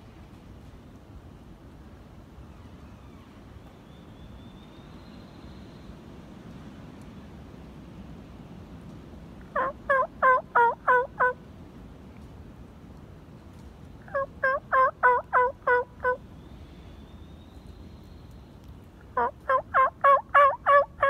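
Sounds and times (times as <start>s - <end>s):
turkey yelps: 9.6s - 11.4s, 14.1s - 16.2s, 19.2s - 21.0s.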